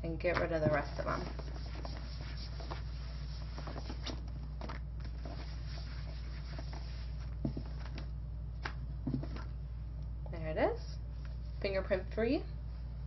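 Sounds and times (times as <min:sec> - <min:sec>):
steady low hum: 0:00.0 - 0:13.0
cloth swishing on glass: 0:00.5 - 0:04.3, 0:05.1 - 0:07.7.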